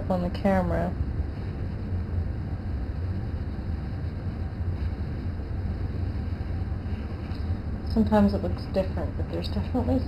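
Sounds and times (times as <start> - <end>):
low mechanical hum: 0.0 - 10.0.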